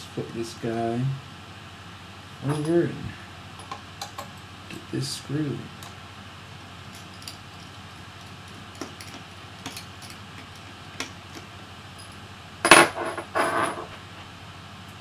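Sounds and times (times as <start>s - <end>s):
metallic clatter with ring: 6.9s - 11.4s, 12.0s - 14.0s.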